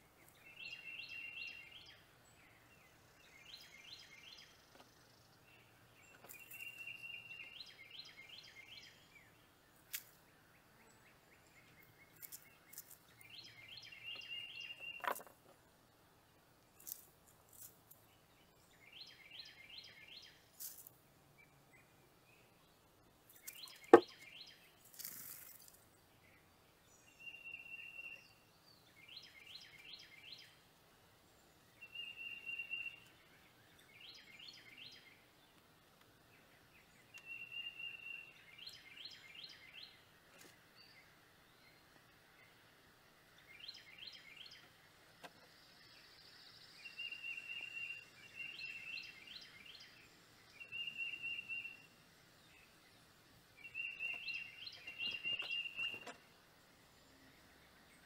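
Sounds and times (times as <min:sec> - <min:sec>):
faint outdoor hiss: 0:00.0 - 0:58.0
songbirds whistling and chirping: 0:00.3 - 0:09.4, 0:10.6 - 0:15.3, 0:18.4 - 0:20.4, 0:23.3 - 0:25.6, 0:26.2 - 0:30.6, 0:31.8 - 0:35.3, 0:36.4 - 0:40.0, 0:43.4 - 0:44.7, 0:45.3 - 0:52.9, 0:53.6 - 0:56.2.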